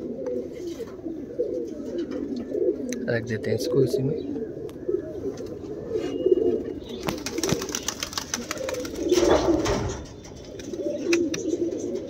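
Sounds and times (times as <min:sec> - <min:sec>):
pigeons cooing: 0:00.0 - 0:12.0
rustling and scraping: 0:00.4 - 0:02.5, 0:08.4 - 0:12.0.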